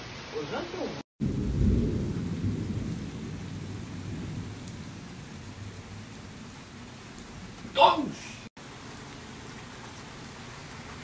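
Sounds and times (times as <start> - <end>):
heavy rain on pavement and cars: 0.0 - 11.0
thunder rumbling: 1.2 - 8.2.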